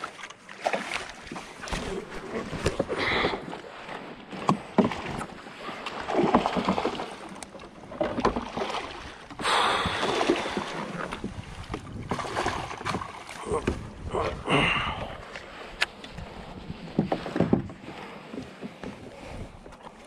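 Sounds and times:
fish thrashing and splashing water: 0.0 - 4.0, 4.6 - 14.0.

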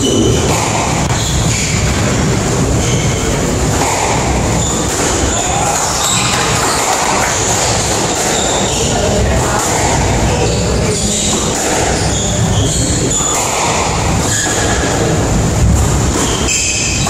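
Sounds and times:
loud rumbling background noise: 0.0 - 17.0
squash ball hitting racket and walls: 0.0 - 17.0
shoes squeaking: 2.8 - 9.2, 9.8 - 15.2.

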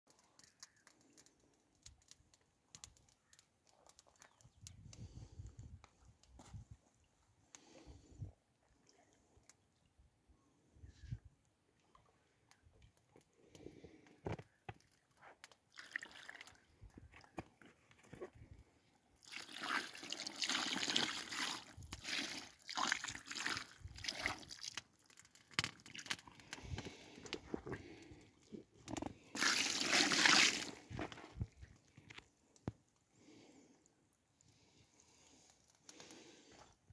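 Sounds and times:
water pouring onto fish and mat: 15.7 - 16.6, 19.2 - 27.1, 29.3 - 30.9.

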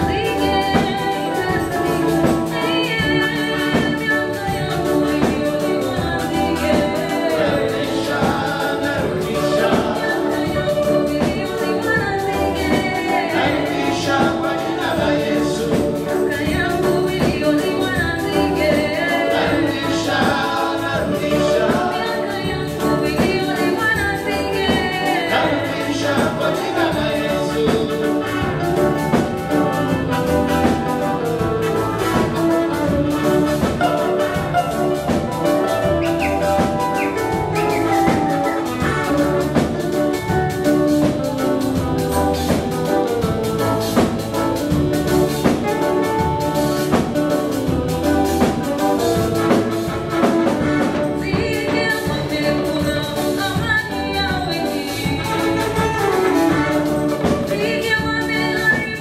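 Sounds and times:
drum kit dance beat: 0.0 - 59.0
electric guitars: 0.0 - 59.0
saxophone: 0.0 - 59.0
man singing: 7.0 - 10.9, 13.2 - 16.3, 19.0 - 22.3, 25.3 - 28.5.

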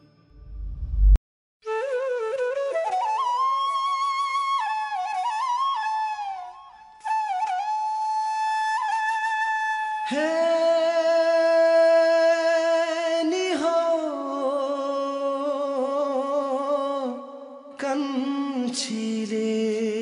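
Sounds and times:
man singing: 10.1 - 20.0.

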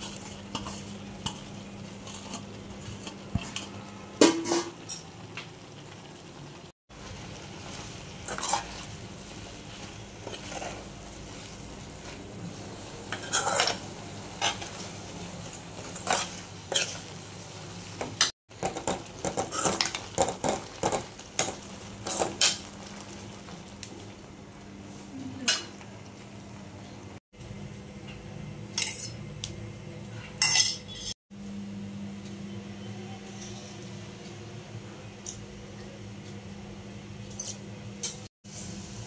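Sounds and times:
ladle clinking and scraping pan: 13.1 - 14.9, 15.8 - 17.1.

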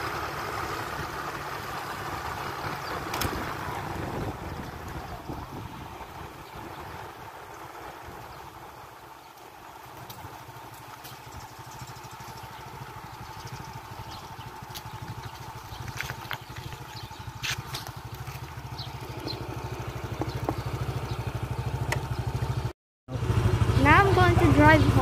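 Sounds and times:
small motorcycle engine putter: 2.9 - 3.6, 14.6 - 20.9.

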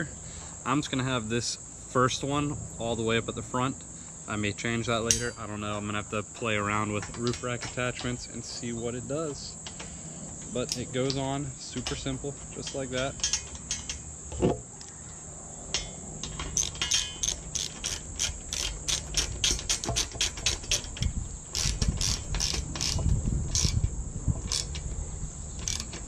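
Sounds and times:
socket ratchet clicking: 15.7 - 26.0.

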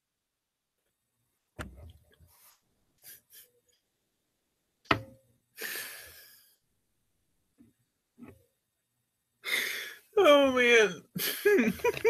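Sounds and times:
sharp knock: 4.9 - 5.2.

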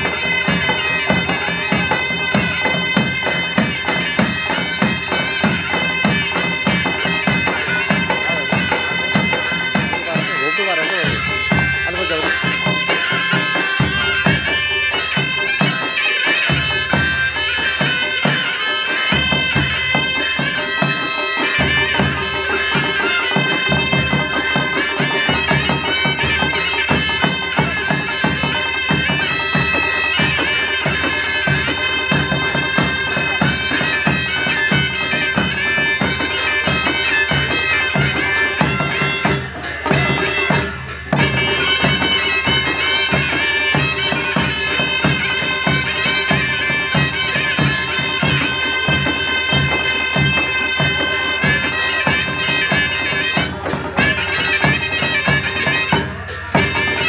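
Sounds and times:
cymbals: 0.0 - 57.0
hand drums beating: 0.0 - 57.0
reedy wind instrument melody: 0.0 - 57.0.

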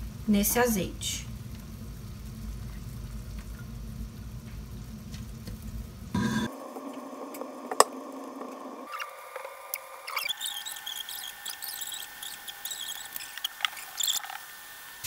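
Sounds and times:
onion sizzling in oil: 0.0 - 15.0
low hum: 1.2 - 11.6
spatula stirring in pan: 10.1 - 14.5.

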